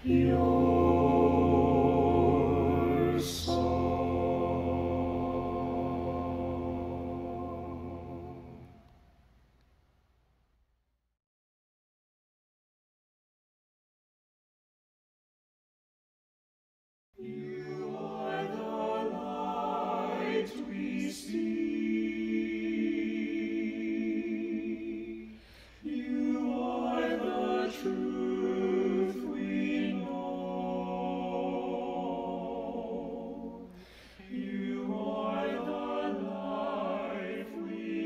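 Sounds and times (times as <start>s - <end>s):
a cappella group singing chords: 0.0s - 9.1s, 17.2s - 38.0s.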